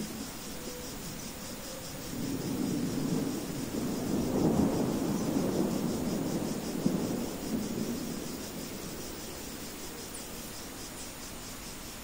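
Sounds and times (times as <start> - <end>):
rain hissing: 1.8 - 12.0
rolling thunder: 1.9 - 10.0.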